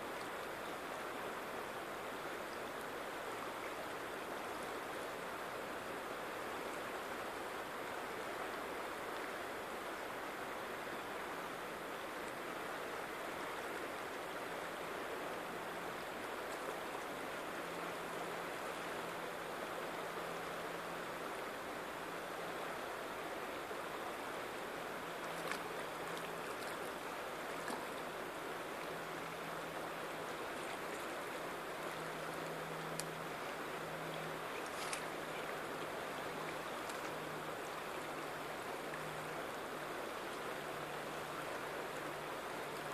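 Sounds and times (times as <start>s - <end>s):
river flowing: 0.0s - 42.9s
faint clicks: 32.9s - 33.2s, 34.6s - 35.1s.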